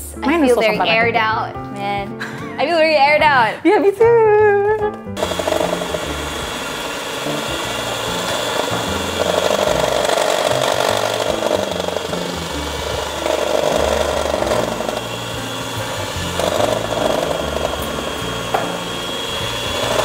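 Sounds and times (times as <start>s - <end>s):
electric hand mixer whirring: 5.2s - 20.0s.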